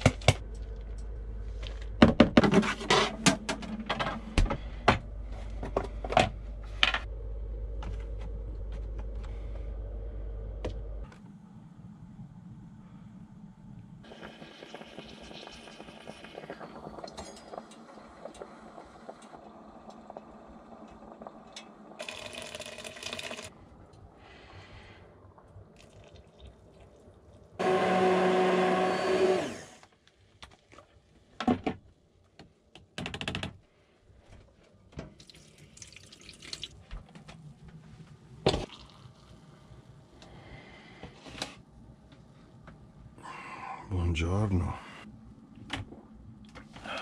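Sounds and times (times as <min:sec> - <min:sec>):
low steady hum: 0:00.0 - 0:30.9
liquid pouring: 0:22.0 - 0:23.5, 0:25.8 - 0:27.5, 0:35.1 - 0:36.8, 0:38.5 - 0:39.4
electric blender motor: 0:27.6 - 0:29.9.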